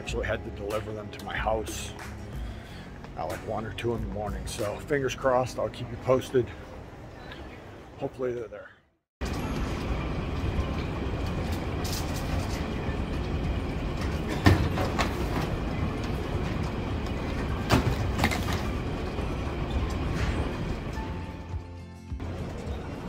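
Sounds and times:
baggage carousel rumbling: 0:09.2 - 0:23.0.

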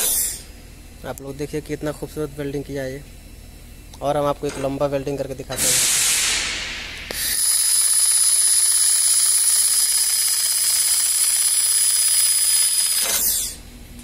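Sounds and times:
laser welder whine: 0:00.0 - 0:00.6, 0:05.5 - 0:14.0
shielding gas hiss: 0:05.5 - 0:08.8.

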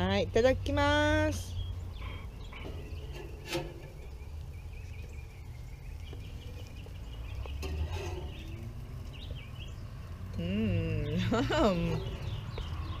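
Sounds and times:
low outdoor rumble: 0:00.0 - 0:13.0
grill tongs clicking on grate: 0:02.6 - 0:04.2, 0:07.4 - 0:08.9.

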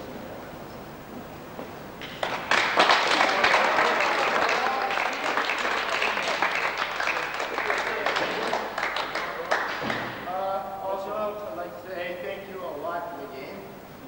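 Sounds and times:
group of people clapping: 0:02.0 - 0:10.3.

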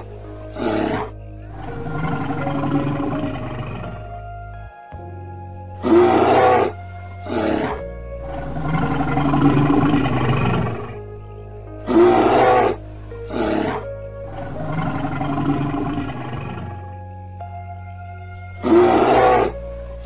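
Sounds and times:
bear roaring and growling: 0:00.0 - 0:04.1, 0:05.8 - 0:11.1, 0:11.8 - 0:17.0, 0:18.6 - 0:19.6
low background music: 0:00.0 - 0:20.0.

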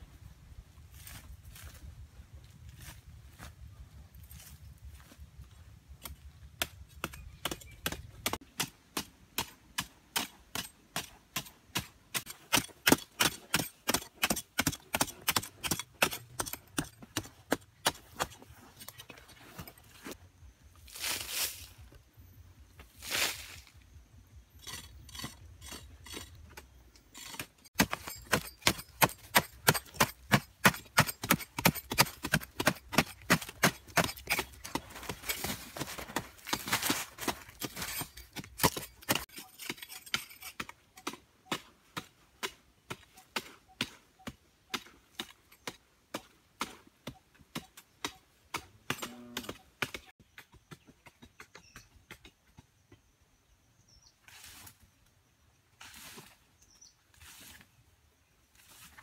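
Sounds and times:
digging bars striking stony soil: 0:05.9 - 0:21.9, 0:22.8 - 0:53.1.

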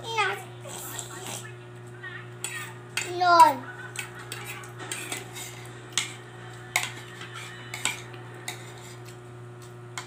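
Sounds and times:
cutlery clinking on plate: 0:03.9 - 0:09.2.

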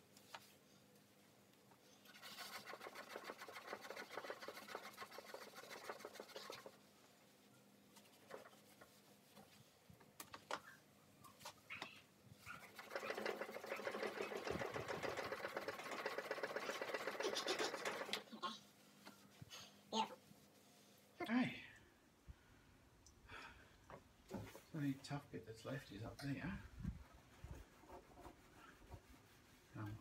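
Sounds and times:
scrubber scrubbing wet metal: 0:02.1 - 0:06.8, 0:12.6 - 0:18.2.

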